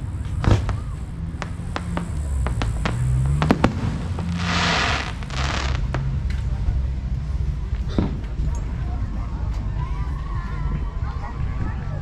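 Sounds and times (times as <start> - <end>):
fireworks bursting: 0.0 - 6.3
crackling fireworks hiss: 0.0 - 6.9.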